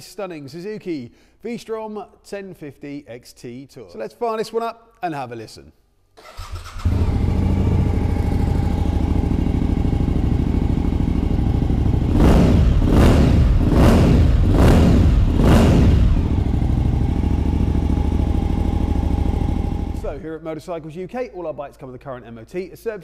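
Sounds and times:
motorcycle engine revving: 0:06.2 - 0:20.2
motorcycle engine idling: 0:06.6 - 0:20.2.

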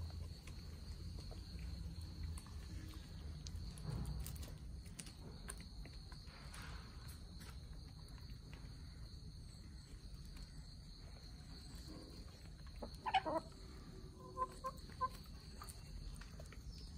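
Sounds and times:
chickens clucking: 0:12.0 - 0:15.8.

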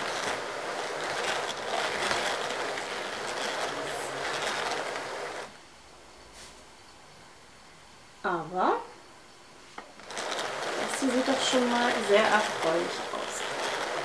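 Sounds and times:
drum carder scratchy whirr: 0:00.0 - 0:05.6, 0:09.8 - 0:14.0.

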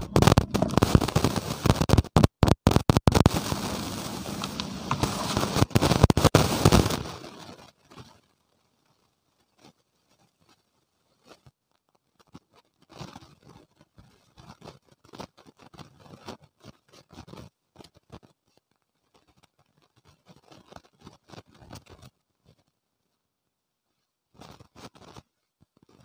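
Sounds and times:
dry dirt crumbling into plastic bucket: 0:00.0 - 0:02.3, 0:04.4 - 0:06.3.

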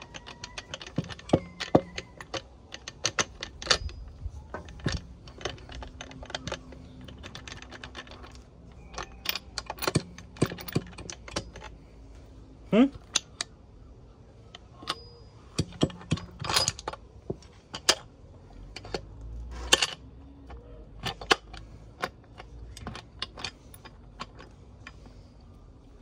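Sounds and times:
metal gears clicking and clinking: 0:00.0 - 0:12.2, 0:14.5 - 0:25.3.

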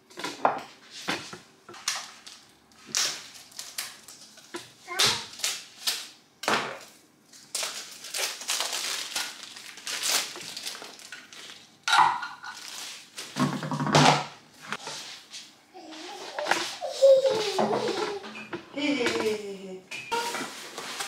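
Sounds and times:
plastic packaging crinkling: 0:01.8 - 0:04.6, 0:05.2 - 0:06.2, 0:06.8 - 0:13.4.

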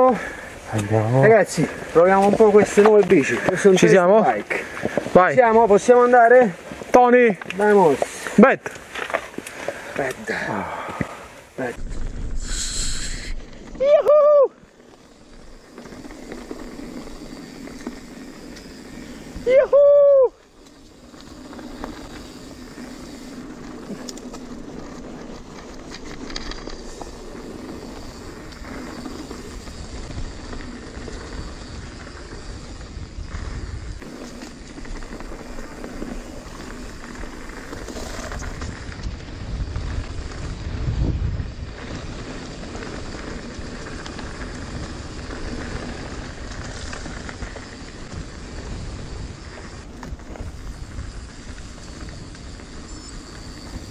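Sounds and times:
bike tyres rolling on dirt trail: 0:00.0 - 0:53.9
wind noise on microphone: 0:10.7 - 0:14.6, 0:15.2 - 0:53.9
low rumble: 0:11.8 - 0:13.9.

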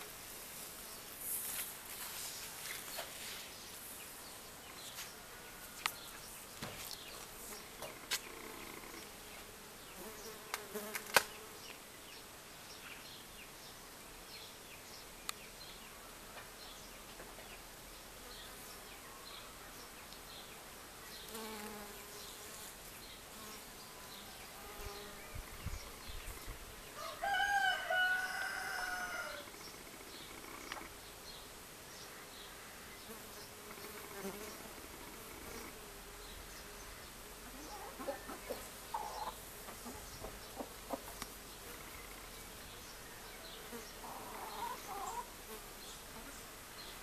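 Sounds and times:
rooster crowing: 0:27.0 - 0:29.5.

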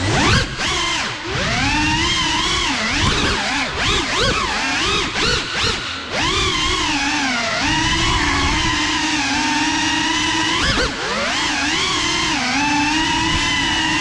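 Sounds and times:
drone motors whining: 0:00.0 - 0:14.0.

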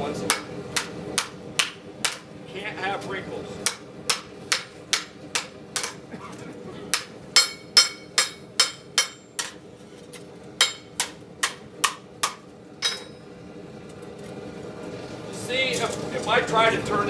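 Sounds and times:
hammer striking metal: 0:00.3 - 0:02.3, 0:03.6 - 0:06.0, 0:06.9 - 0:09.6, 0:10.6 - 0:13.2.

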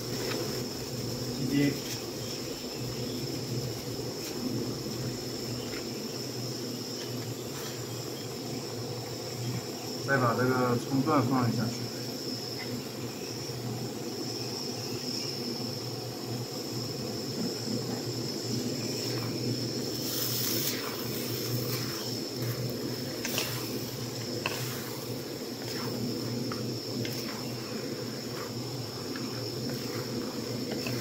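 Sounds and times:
food sizzling in a pan: 0:00.0 - 0:31.0
high insect drone: 0:00.0 - 0:31.0
spatula scraping and tapping pan: 0:20.5 - 0:31.0.

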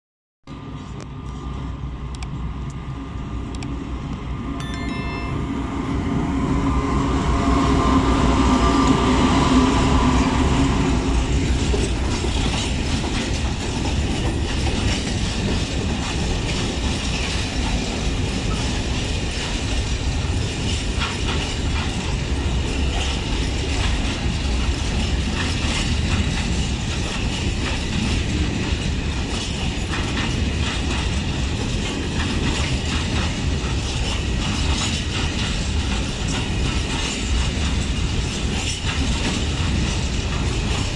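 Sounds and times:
diesel locomotive engine: 0:00.5 - 0:40.9
wheels clattering over rail joints: 0:11.3 - 0:40.9.

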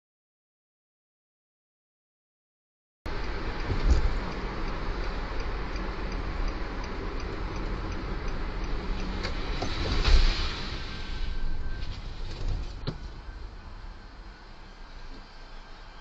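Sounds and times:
light ticking: 0:03.1 - 0:09.8
car engine and road noise: 0:03.1 - 0:16.0.

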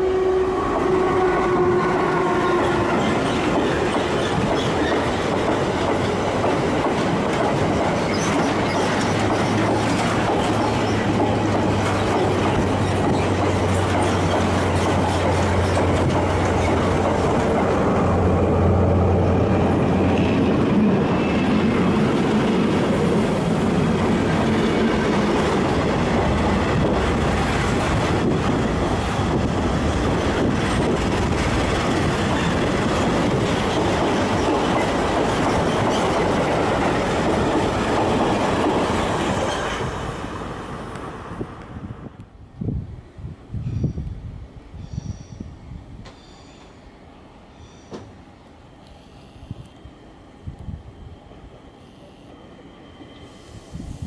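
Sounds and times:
freight train wheels clattering: 0:02.6 - 0:18.5, 0:19.7 - 0:40.0.

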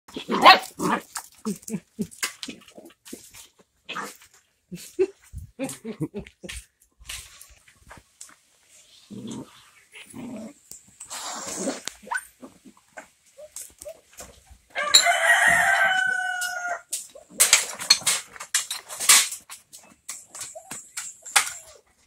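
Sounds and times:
rooster crowing: 0:14.7 - 0:16.9.

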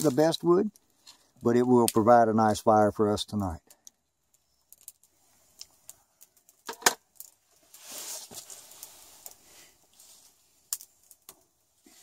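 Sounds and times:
campfire crackling and popping: 0:00.0 - 0:12.0
soft hiss: 0:07.4 - 0:12.0.

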